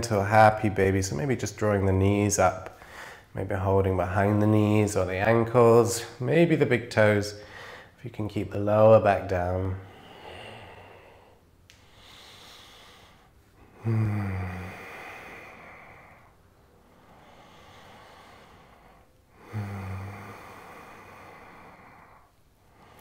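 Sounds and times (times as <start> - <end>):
man breathing deeply: 2.7 - 3.4, 7.4 - 8.0, 9.8 - 23.0
man sighing: 13.6 - 16.2, 19.4 - 22.1.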